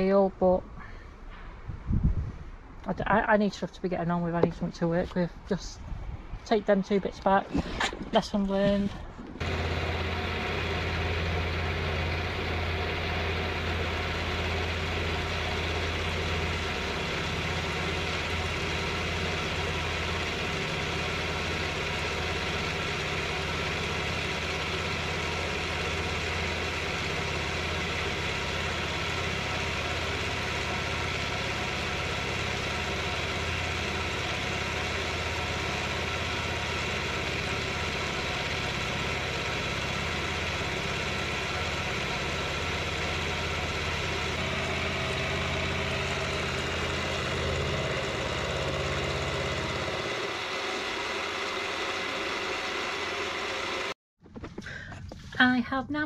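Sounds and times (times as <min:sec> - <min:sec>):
milling machine cutting steel: 0:09.4 - 0:53.9.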